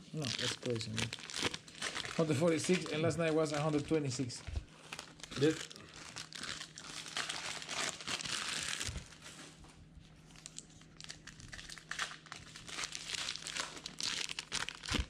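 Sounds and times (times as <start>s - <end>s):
plastic wrapping crinkling and tearing: 0.0s - 9.6s, 10.2s - 15.0s.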